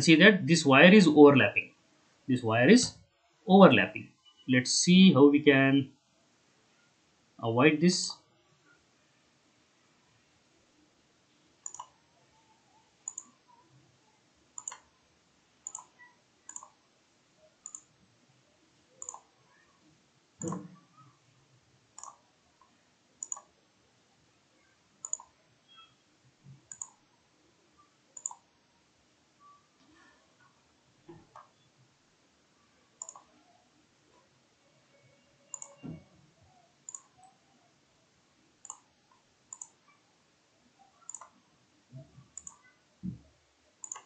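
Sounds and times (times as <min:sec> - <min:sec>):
mouse button clicking: 0:11.6 - 0:12.0, 0:20.4 - 0:20.7, 0:35.5 - 0:36.0.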